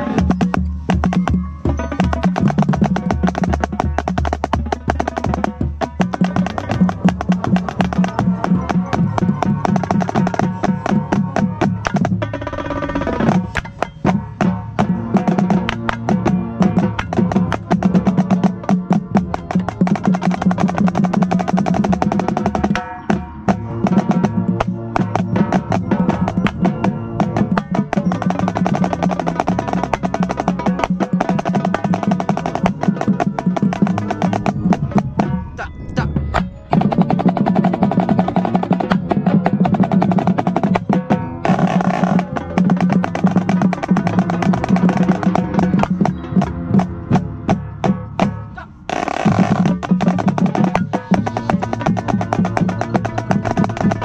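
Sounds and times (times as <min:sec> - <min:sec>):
marching snare drum rolls: 0:00.0 - 0:54.0
tenor drums: 0:00.0 - 0:54.0
sustained low notes: 0:23.7 - 0:40.4.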